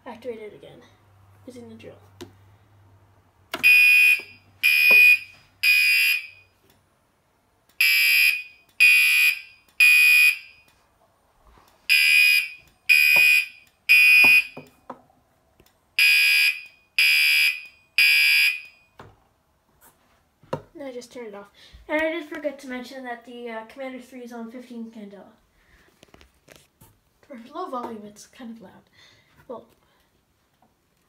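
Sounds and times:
fire alarm horn blasts: 3.6s - 6.6s, 7.8s - 10.7s, 11.9s - 14.6s, 16.0s - 18.9s.

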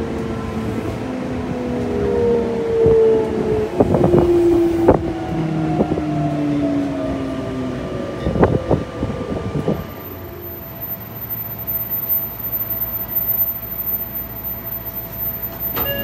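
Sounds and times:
traction motor whine: 9.8s - 16.0s.

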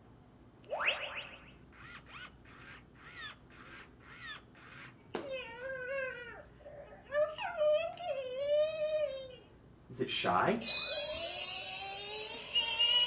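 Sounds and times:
rhythmic electronic chirping beats: 10.6s - 13.0s
rising electronic sweep: 10.6s - 13.0s.

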